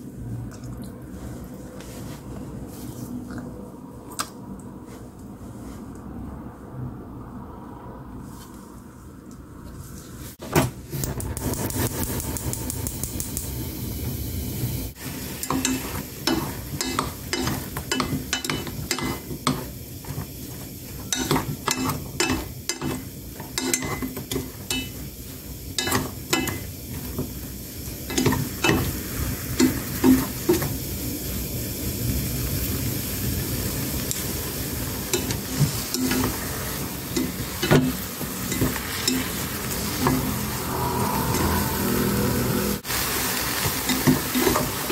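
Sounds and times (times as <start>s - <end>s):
vegetables sizzling in a pan: 11.4s - 44.9s
wooden utensils clacking on a pan: 15.3s - 25.1s, 25.7s - 27.4s, 28.1s - 29.0s, 29.6s - 30.7s, 35.1s - 40.4s, 43.6s - 44.9s.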